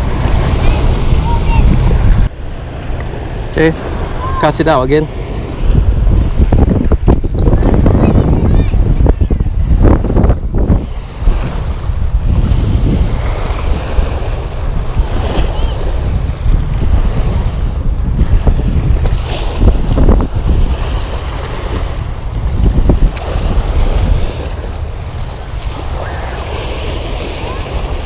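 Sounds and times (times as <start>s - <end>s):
gusty wind rumble on microphone: 0.0s - 28.0s
waves washing against rocks: 10.7s - 28.0s.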